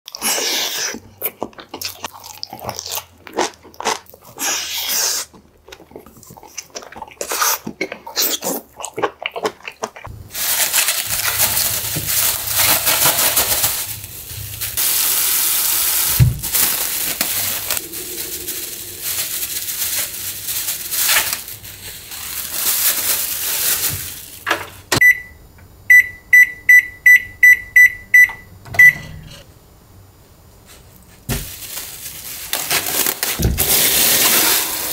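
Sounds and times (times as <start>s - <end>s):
plastic bag crinkling: 10.3s - 24.9s, 31.3s - 34.9s
microwave keypad beeps: 25.0s - 29.1s.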